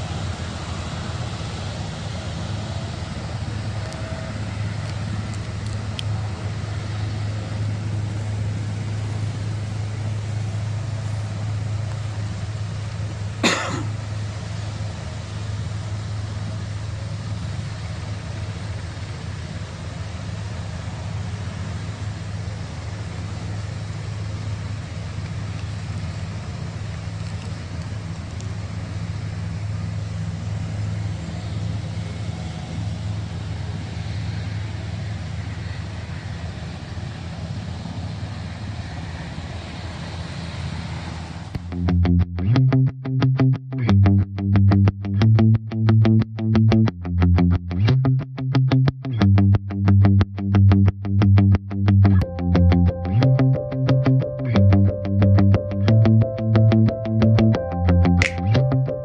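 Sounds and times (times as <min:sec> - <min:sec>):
helicopter engine and rotor rumble: 0:00.0 - 0:41.5
sharp click: 0:58.2 - 0:58.6.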